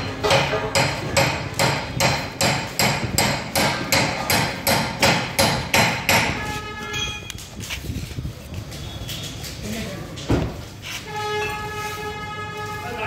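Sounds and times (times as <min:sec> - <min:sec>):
hammer striking metal: 0:00.0 - 0:06.4.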